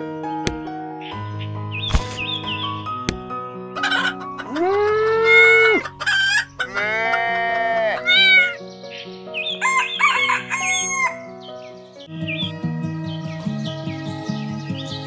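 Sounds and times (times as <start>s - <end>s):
light background music: 0.0s - 15.0s
chicken clucking: 3.8s - 6.9s
rooster crowing: 9.6s - 11.3s.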